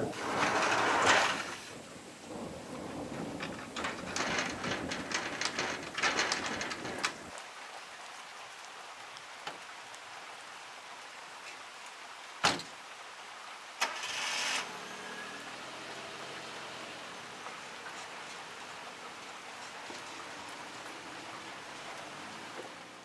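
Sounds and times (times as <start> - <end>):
sliding doors rattling shut: 0.0 - 7.4, 12.4 - 12.7
steady hiss: 0.0 - 7.6
car engine starting and idling: 13.8 - 18.0.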